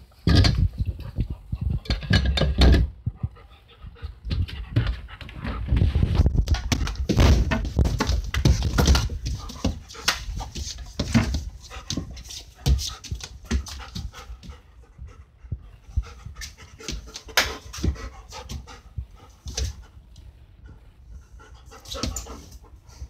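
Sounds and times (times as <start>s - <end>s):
dog panting: 3.0s - 5.8s, 9.3s - 20.0s, 20.6s - 23.0s.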